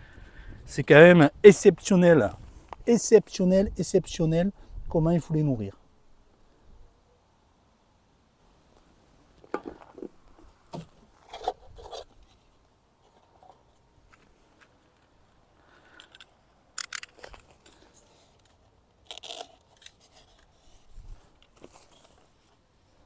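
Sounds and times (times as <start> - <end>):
plastic hive handling clicks and scrapes: 9.4 - 14.8, 15.9 - 22.7.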